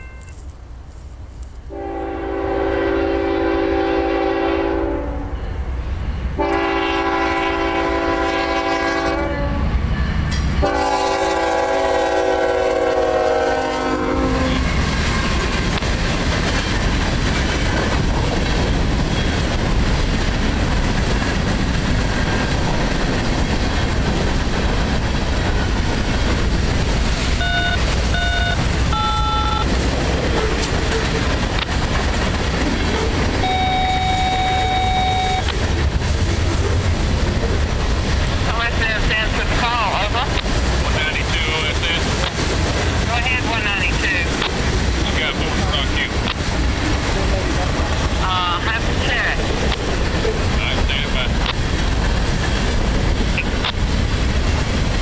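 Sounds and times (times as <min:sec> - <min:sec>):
locomotive air horn blasts: 0:01.7 - 0:05.4, 0:06.4 - 0:09.7, 0:10.6 - 0:14.6, 0:27.4 - 0:29.7, 0:33.4 - 0:35.5
freight cars rumbling: 0:14.3 - 0:55.0.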